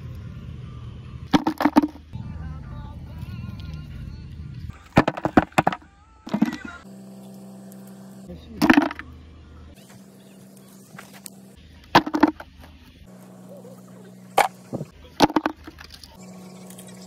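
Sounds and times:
stones clattering into plastic bucket: 1.3 - 2.0, 4.9 - 6.7, 8.6 - 9.0, 11.9 - 12.5, 15.2 - 16.0.

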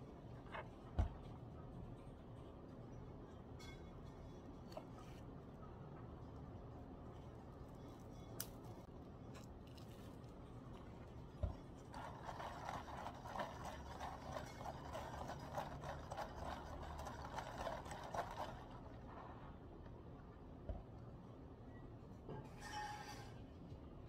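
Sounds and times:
ice cubes clinking in plastic cup: 12.0 - 18.8.

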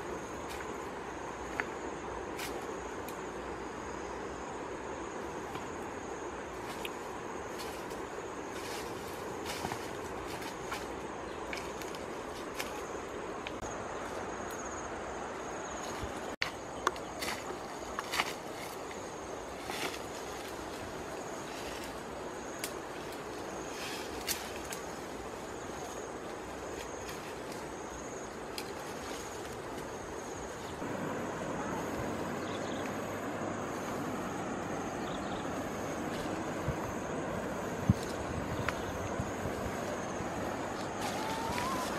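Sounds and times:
background hiss: 0.0 - 41.9
insect drone: 0.0 - 41.9
rushing outdoor noise: 0.0 - 41.9
bare footsteps on stones: 8.6 - 12.9, 15.8 - 20.7.

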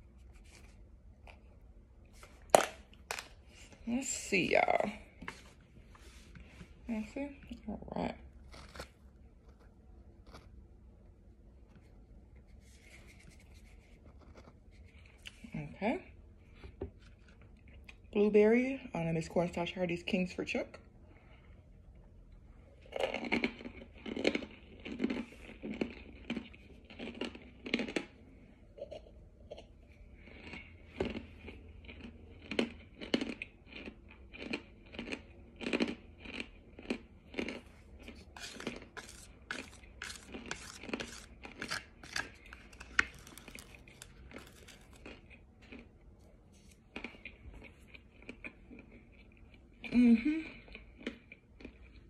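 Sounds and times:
crunching and chewing: 0.0 - 3.8, 7.4 - 12.1, 22.3 - 52.0.

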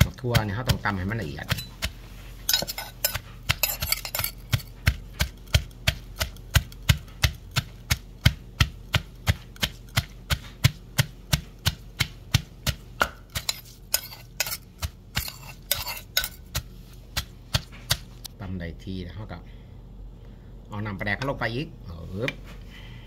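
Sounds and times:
pestle pounding in mortar: 0.0 - 18.2
spoon scraping mortar: 0.1 - 6.8, 13.3 - 18.1.

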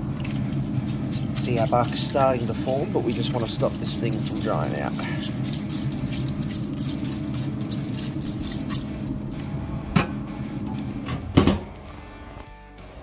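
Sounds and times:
grill fan hum: 0.0 - 13.0
spray bottle hissing: 0.7 - 9.2
loud thump: 11.1 - 11.7.

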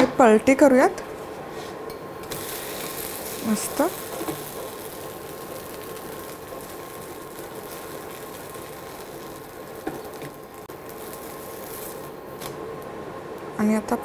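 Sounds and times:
pancake sizzling in oil: 2.2 - 12.8.

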